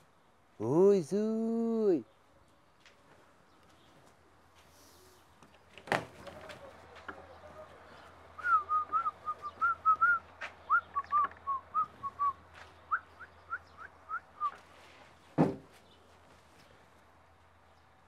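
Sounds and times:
person whistling: 8.4s - 14.6s.

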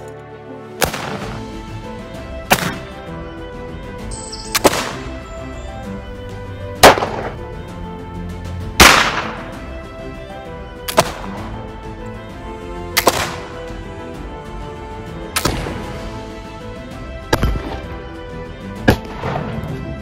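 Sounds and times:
background music: 0.0s - 20.0s
muzzleloading gun shots: 0.8s - 1.4s, 2.5s - 2.9s, 4.4s - 5.2s, 6.8s - 7.5s, 8.8s - 9.5s, 10.8s - 11.4s, 12.9s - 13.6s, 15.3s - 15.8s.

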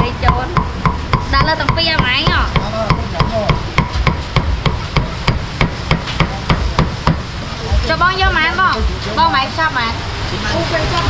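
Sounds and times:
cleaver chopping meat on wood: 0.0s - 7.3s.

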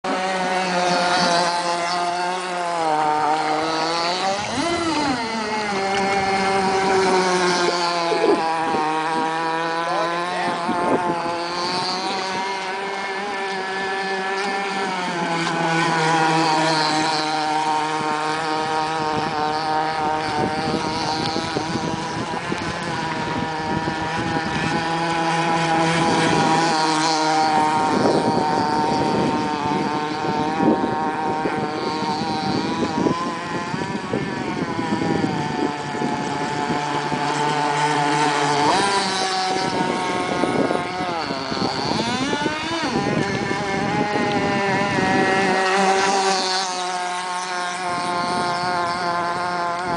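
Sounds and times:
rc boat motor high whine: 0.0s - 49.9s.

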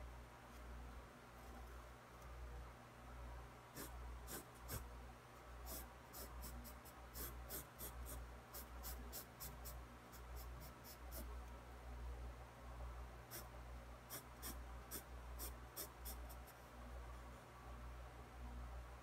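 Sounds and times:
pencil scratching on paper: 3.8s - 4.8s, 5.6s - 11.3s, 14.1s - 16.6s.

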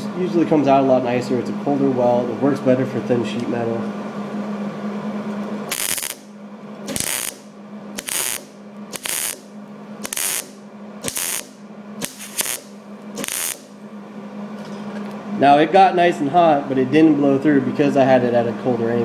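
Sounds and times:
steady welder hum: 0.0s - 19.0s
welding arc sizzle: 5.6s - 13.8s.

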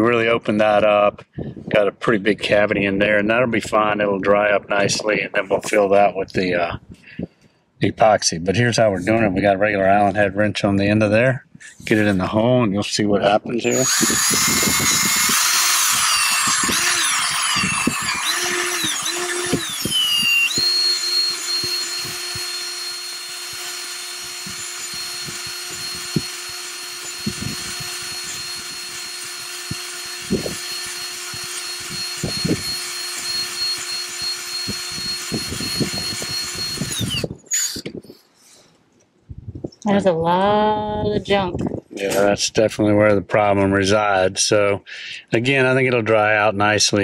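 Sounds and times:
cordless drill whining: 13.6s - 38.3s.

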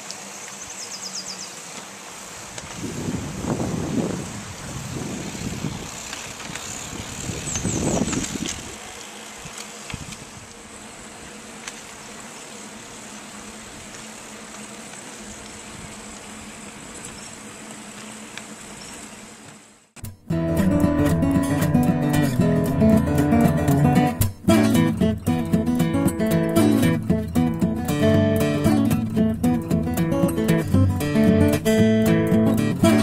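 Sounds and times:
wind noise on microphone: 2.4s - 8.8s, 9.4s - 10.6s.

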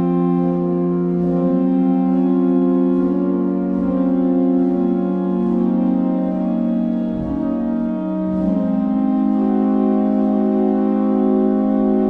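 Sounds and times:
slow sustained music chords: 0.0s - 12.0s.

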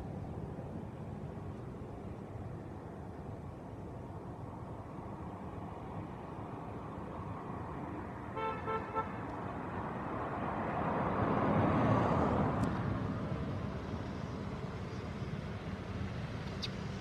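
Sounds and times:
road traffic noise: 0.0s - 17.0s
vehicle passing: 6.4s - 17.0s
vehicle horn toots: 8.4s - 9.2s.

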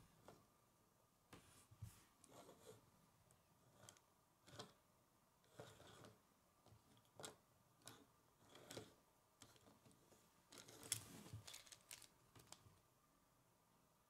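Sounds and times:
plastic parts clicking on wood: 10.5s - 12.6s.

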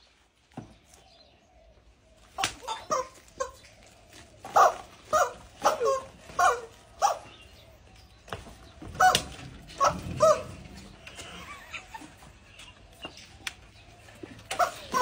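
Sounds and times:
rubber chicken toys squawking: 2.3s - 3.6s, 4.4s - 7.3s.

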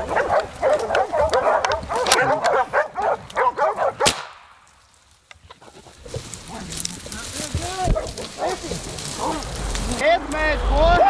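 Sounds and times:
dogs baying and yipping: 0.0s - 4.2s, 5.4s - 9.5s
air rifle shot: 4.0s - 4.6s.

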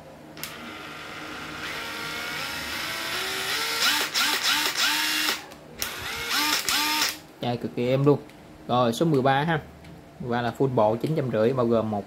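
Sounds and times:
cordless screwdriver motor whining: 0.4s - 7.2s.

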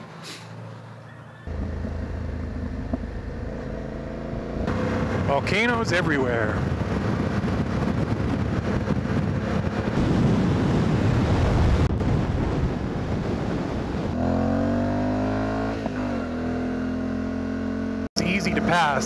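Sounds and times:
motorcycle engine running: 1.4s - 10.0s
wind rush over microphone: 4.4s - 14.8s.

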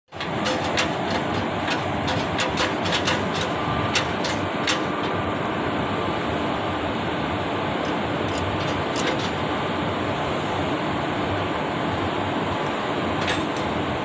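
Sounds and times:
sharp metallic clicks and clanks: 0.1s - 5.2s, 7.8s - 9.4s, 13.2s - 13.8s
locomotive machinery running: 0.1s - 14.0s.

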